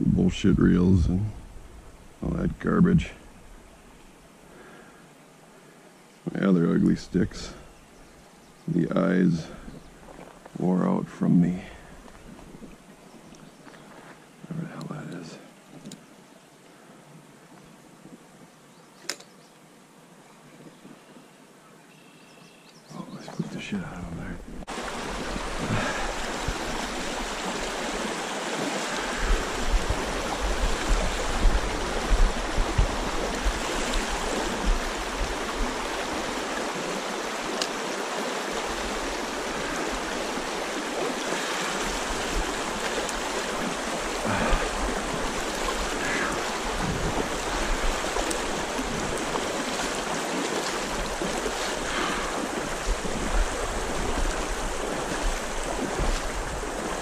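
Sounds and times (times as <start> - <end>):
low rumble of water: 0.0 - 4.7, 23.1 - 57.0
stream rushing over rocks: 23.7 - 57.0.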